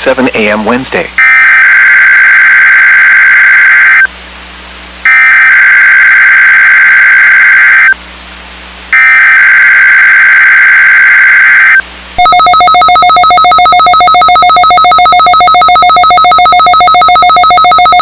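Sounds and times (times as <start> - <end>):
harsh digital tone bursts: 9.0 - 18.0.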